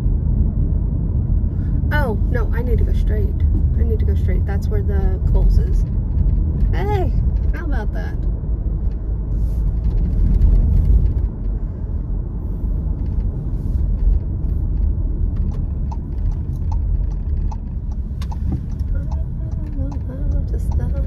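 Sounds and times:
car engine and road noise: 0.0s - 21.0s
faint regular ticking: 14.1s - 21.0s.

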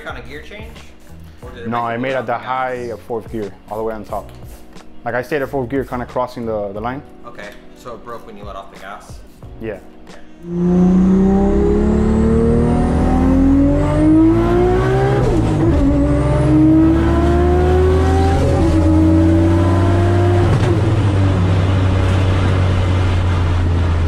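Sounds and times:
car engine at full throttle: 10.4s - 24.0s
low drone: 10.4s - 24.0s.

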